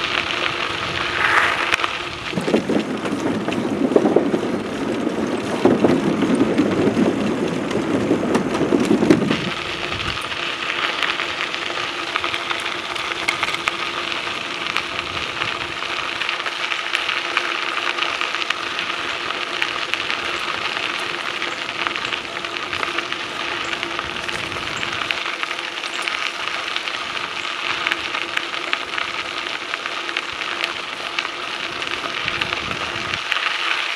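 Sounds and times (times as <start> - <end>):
bicycle tyres rattling on wooden deck: 0.0 - 1.1, 1.8 - 33.9
tyres crunching on gravel: 7.8 - 33.9.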